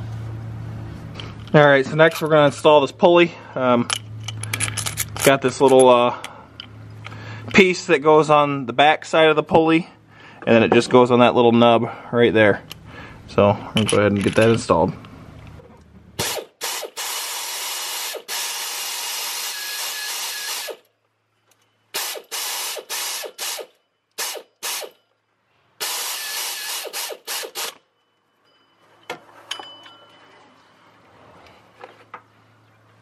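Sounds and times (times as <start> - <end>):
ratchet wrench clicking: 16.2 - 20.8, 22.0 - 25.0, 25.8 - 27.8.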